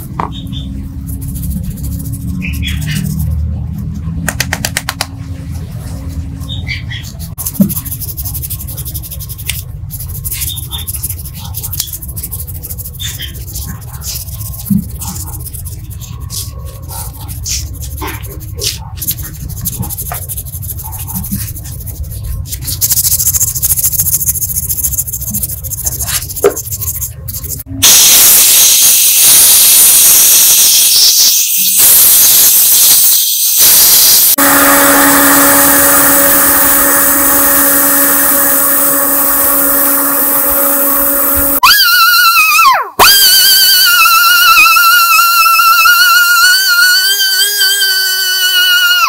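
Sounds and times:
hand sanding metal: 0.8 - 3.4, 7.1 - 41.6.

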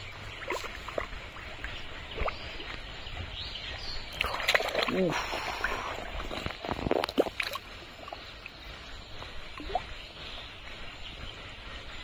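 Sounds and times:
muddy water sloshing: 0.0 - 11.7
sharp splashes: 0.4 - 2.6, 4.1 - 8.2.

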